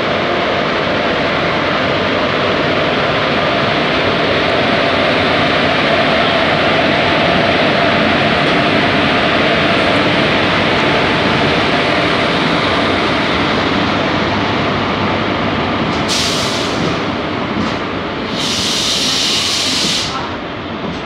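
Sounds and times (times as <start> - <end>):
electric locomotive running: 0.0 - 21.0
burst of hiss: 18.3 - 20.2.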